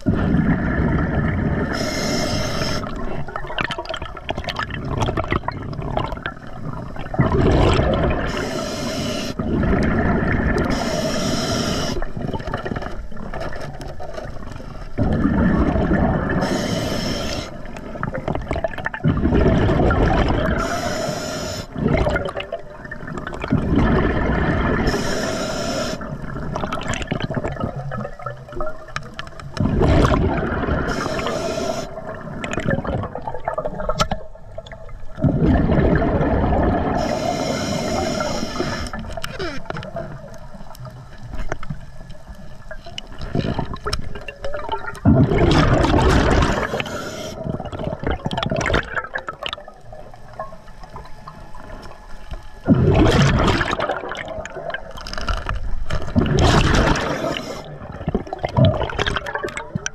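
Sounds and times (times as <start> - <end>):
exhaust bubbles burbling: 0.0 - 1.8, 2.8 - 8.4, 9.4 - 10.8, 15.0 - 16.4, 17.9 - 20.6, 21.7 - 25.0, 26.0 - 31.3, 31.9 - 37.1, 43.2 - 46.8, 47.4 - 51.6, 52.6 - 55.0, 56.0 - 59.9
regulator hiss: 1.7 - 2.9, 8.3 - 9.4, 10.7 - 12.1, 16.4 - 17.6, 20.6 - 21.7, 24.9 - 26.1, 30.9 - 32.0, 37.0 - 39.0, 46.5 - 47.4, 56.9 - 57.7.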